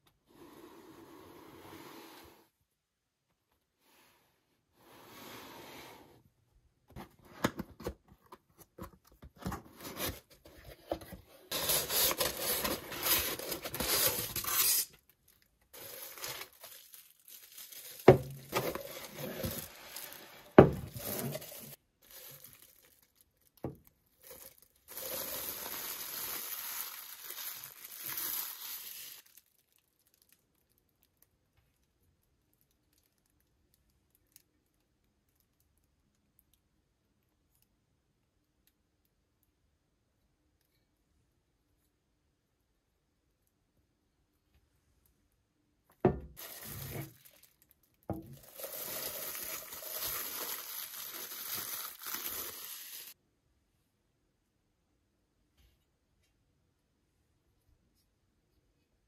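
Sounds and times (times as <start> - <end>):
cardboard box opening: 7.2 - 14.9, 17.9 - 21.8
plastic bags crinkling and tearing: 11.5 - 30.8, 46.4 - 53.2.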